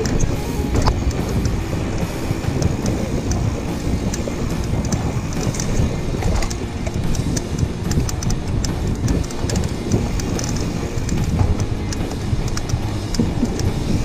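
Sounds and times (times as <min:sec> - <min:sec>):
bike ticks and rattles: 0:00.0 - 0:14.0
bike tyres rumbling on dirt: 0:00.0 - 0:14.0
wind buffeting microphone: 0:00.0 - 0:14.0.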